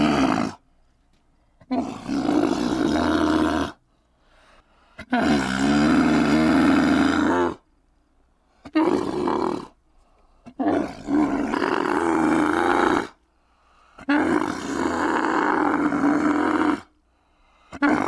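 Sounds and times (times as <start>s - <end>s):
camel bellowing: 10.5s - 13.1s.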